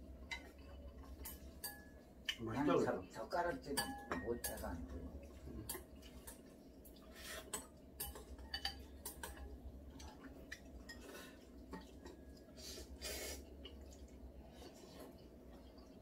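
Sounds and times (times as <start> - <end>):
chopsticks clinking against bowls: 0.3 - 2.4, 3.6 - 4.8, 7.4 - 9.5
noodle slurp: 12.5 - 16.0.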